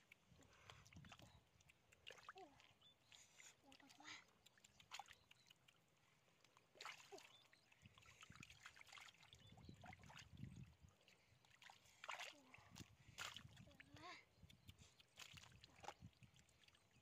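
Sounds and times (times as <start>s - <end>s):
hands squelching through mud: 3.0s - 7.5s, 14.4s - 16.6s.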